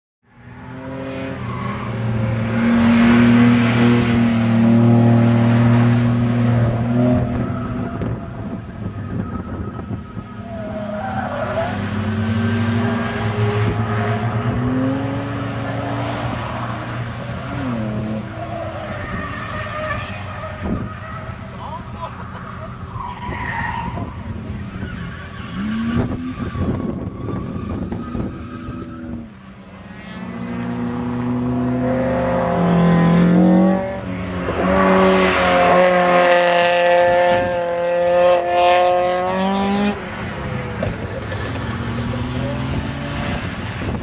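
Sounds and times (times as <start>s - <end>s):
car engines at high revs: 0.3s - 44.0s
tyre squeal: 17.2s - 29.3s.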